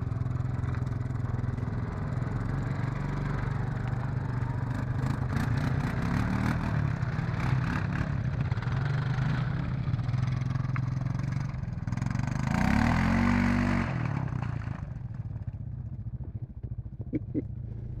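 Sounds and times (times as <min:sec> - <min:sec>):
quad bike engine revving: 0:00.1 - 0:18.0.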